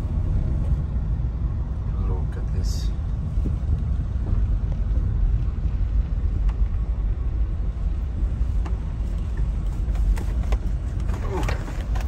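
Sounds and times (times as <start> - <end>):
car tyres and engine rumbling: 0.0 - 12.0.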